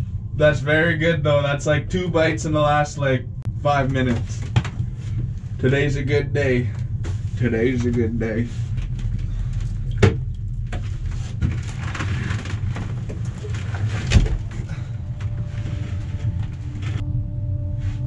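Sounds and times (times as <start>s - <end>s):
faint steady hum: 0.0s - 18.0s
low rumble: 0.0s - 18.0s.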